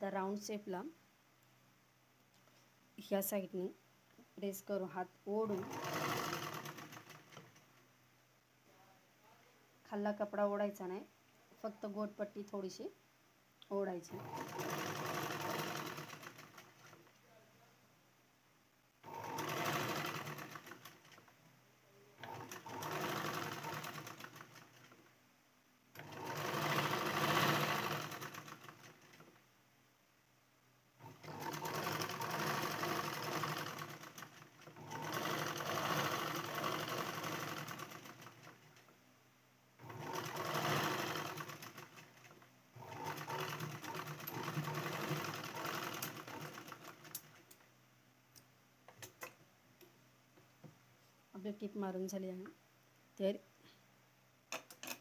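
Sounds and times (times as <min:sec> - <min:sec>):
sewing machine stitching: 0:05.4 - 0:07.7, 0:14.1 - 0:17.1, 0:19.0 - 0:21.4, 0:22.2 - 0:25.1, 0:26.0 - 0:29.4, 0:31.0 - 0:38.9, 0:39.8 - 0:47.6.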